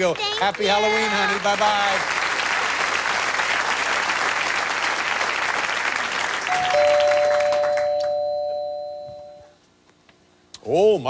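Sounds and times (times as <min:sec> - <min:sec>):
audience applauding: 0:00.0 - 0:08.3
two-note doorbell chime: 0:06.5 - 0:09.5.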